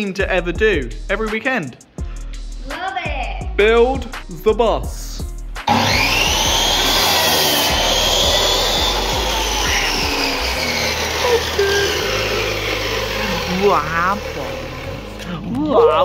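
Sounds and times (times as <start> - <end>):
mitre saw cutting wood: 5.7 - 15.5.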